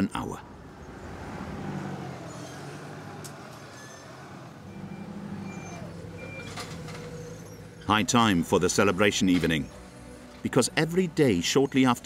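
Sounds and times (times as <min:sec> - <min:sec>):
heavy vehicle engine running: 0:00.4 - 0:10.5
reversing alarm beeping: 0:04.6 - 0:07.7.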